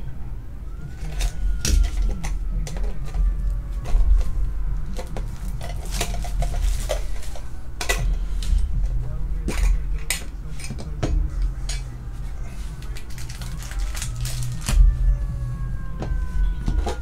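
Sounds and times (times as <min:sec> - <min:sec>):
steady low hum: 0:00.0 - 0:17.0
shrink wrap crinkling: 0:00.9 - 0:08.7, 0:11.5 - 0:15.2.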